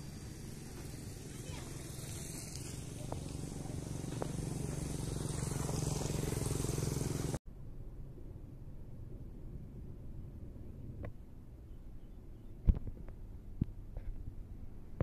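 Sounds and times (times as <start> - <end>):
passing train rumble: 0.0 - 7.4
outdoor background noise: 0.0 - 15.0.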